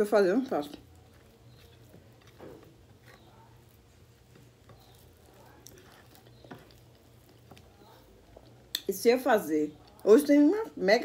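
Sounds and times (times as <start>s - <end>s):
fingers picking through food: 0.6s - 8.9s
mouth chewing: 0.7s - 8.9s
wet eating sound: 0.7s - 8.9s.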